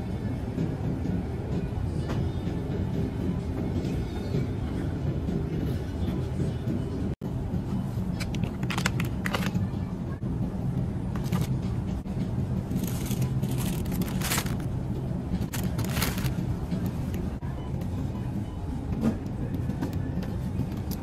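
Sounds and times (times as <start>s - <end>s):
plastic packaging clattering: 11.2s - 11.5s, 12.7s - 14.7s, 15.5s - 16.4s
shopping cart rolling: 12.7s - 14.7s, 15.5s - 16.4s.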